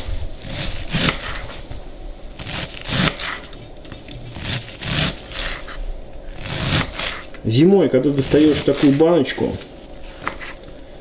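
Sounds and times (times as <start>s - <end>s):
knife chopping on wooden board: 0.5s - 1.5s, 10.1s - 10.6s.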